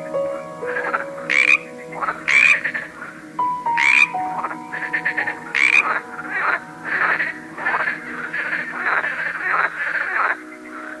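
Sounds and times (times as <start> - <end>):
frogs croaking: 0.0 - 11.0
soft background music: 0.0 - 11.0.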